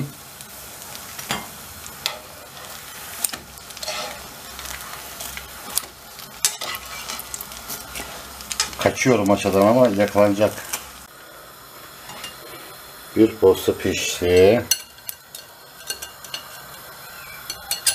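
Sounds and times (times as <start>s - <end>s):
bread sizzling in frying pan: 0.0s - 17.9s
metal tongs clicking against pan: 14.3s - 16.8s, 17.5s - 17.9s.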